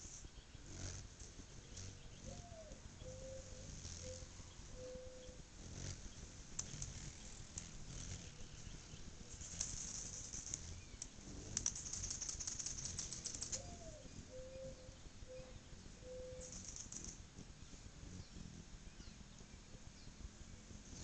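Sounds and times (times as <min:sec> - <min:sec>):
hummingbird chips and chattering: 0:00.0 - 0:21.0
whirr of wings: 0:00.0 - 0:21.0.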